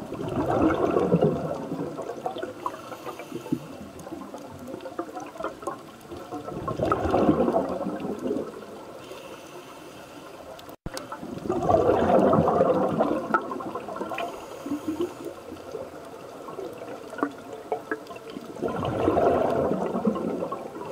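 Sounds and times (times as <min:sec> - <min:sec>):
exhaled bubbles underwater: 0:00.0 - 0:09.1, 0:10.5 - 0:20.9
faint clicks: 0:01.5 - 0:11.7, 0:13.3 - 0:20.9.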